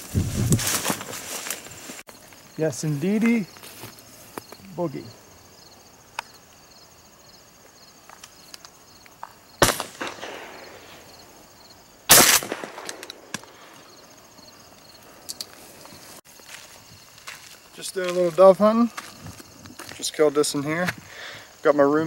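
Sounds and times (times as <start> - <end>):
shotgun shots with echo: 9.6 - 11.1, 12.1 - 13.5.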